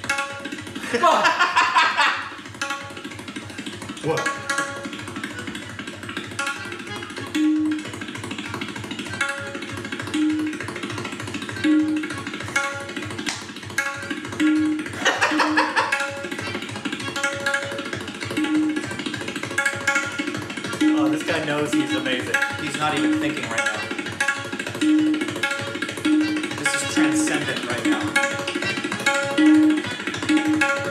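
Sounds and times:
tabla drumming: 0:00.0 - 0:30.9.

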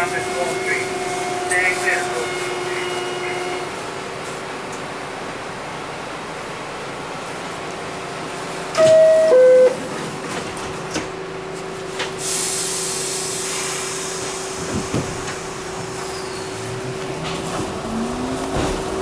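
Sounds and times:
train car hum: 0:00.0 - 0:19.0
two-note door chime: 0:08.8 - 0:09.8.

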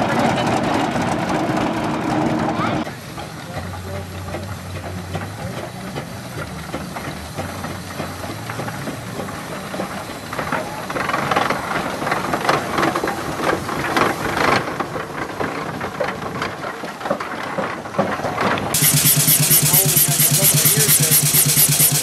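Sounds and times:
steam engine exhaust chuffing: 0:00.0 - 0:14.1, 0:18.8 - 0:22.0.

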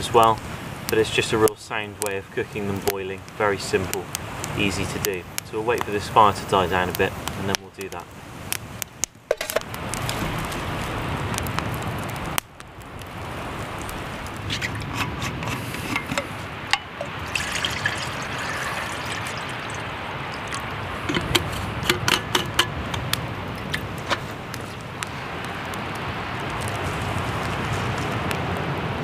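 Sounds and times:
water pouring into a metal cup: 0:17.0 - 0:20.7.

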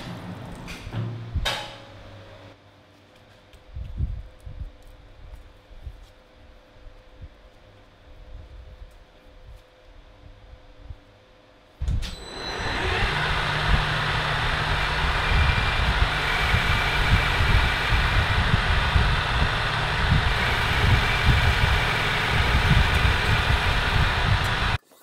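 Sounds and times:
metal lathe whirring: 0:12.0 - 0:24.8.

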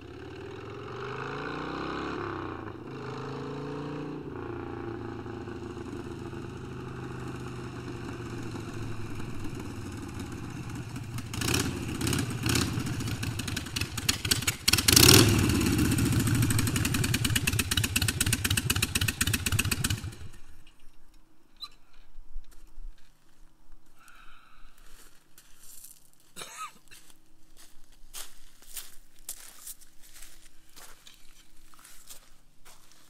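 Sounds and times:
motorcycle engine revving: 0:00.0 - 0:20.4.

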